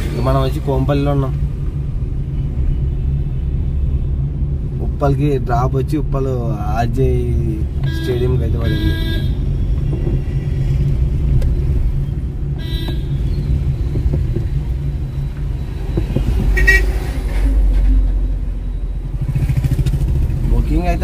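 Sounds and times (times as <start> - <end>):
car rumbling from inside cabin: 0.0 - 21.0
car horn toots: 7.8 - 9.4, 12.6 - 13.3, 16.5 - 17.6.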